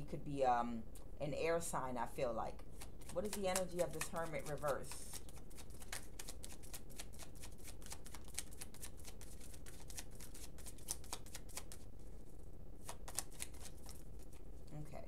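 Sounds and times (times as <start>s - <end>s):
cards being shuffled: 2.7s - 11.9s, 12.8s - 14.4s.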